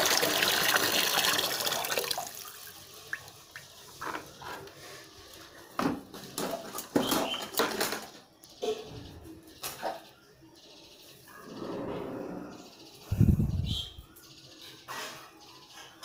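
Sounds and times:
water gushing into plastic basin: 0.0 - 3.5.

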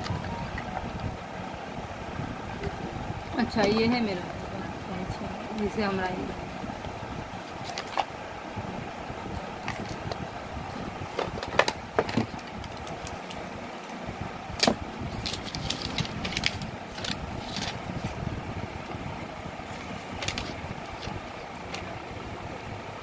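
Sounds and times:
steady background hum: 0.0 - 23.0
paper rustling: 15.2 - 18.2, 19.7 - 21.2.

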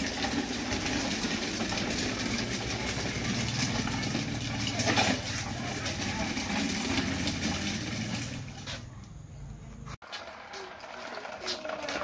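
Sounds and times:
plastic wheels rolling over paving: 0.0 - 8.8, 10.0 - 12.0.

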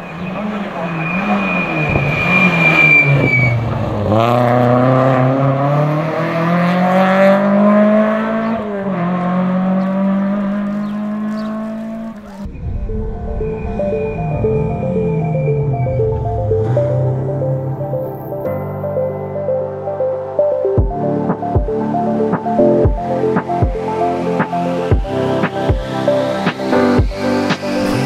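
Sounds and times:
rally car engine revving: 0.0 - 12.6, 13.4 - 18.4, 21.1 - 28.0
car engine approaching: 0.0 - 28.0
high steady whine: 12.4 - 16.7.

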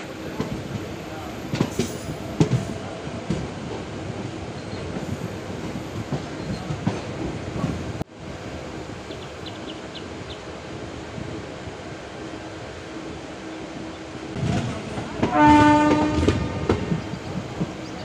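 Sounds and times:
train rumbling: 0.0 - 18.0
train wheels knocking: 0.3 - 7.8, 14.4 - 18.0.

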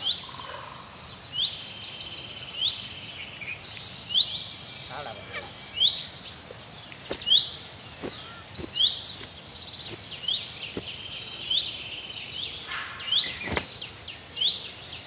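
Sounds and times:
high rising bird chirp: 0.0 - 15.0
high-pitched bird chorus: 0.0 - 15.0.

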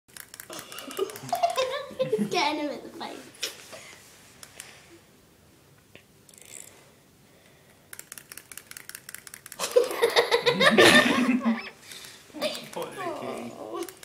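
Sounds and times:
people laughing: 0.8 - 2.4, 9.6 - 11.8.

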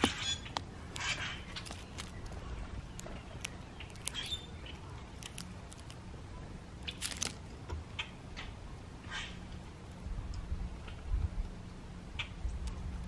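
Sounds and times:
bird pecking seeds in feeder: 0.0 - 6.0
low wind rumble: 0.0 - 13.0.

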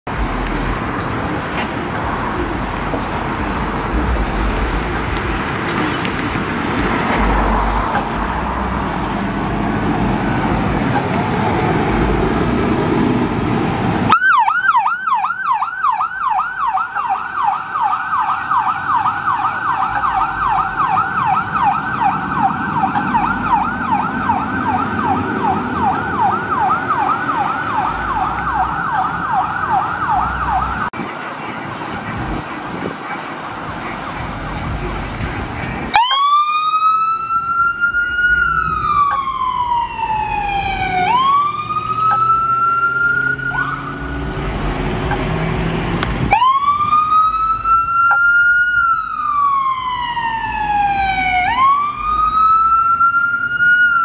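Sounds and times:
heavy engines rumbling: 0.1 - 14.3, 16.0 - 54.0
electronic siren yelping: 14.1 - 30.9, 35.9 - 44.0, 46.3 - 54.0.

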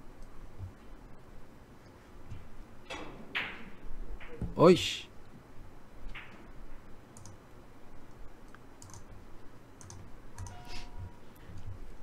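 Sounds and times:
keyboard and mouse clicks: 7.2 - 7.4, 8.5 - 9.1, 9.8 - 10.7.

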